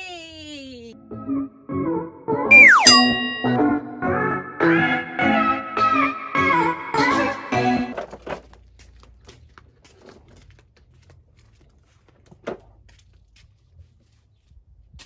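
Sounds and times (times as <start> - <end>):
intro music: 1.0 - 6.5.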